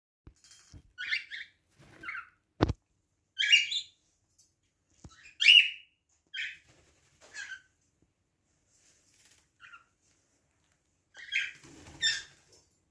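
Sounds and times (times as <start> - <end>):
cockatiel chirping: 1.0 - 2.4, 3.4 - 4.0, 5.1 - 6.6, 7.3 - 7.7, 9.6 - 9.9, 11.1 - 12.4.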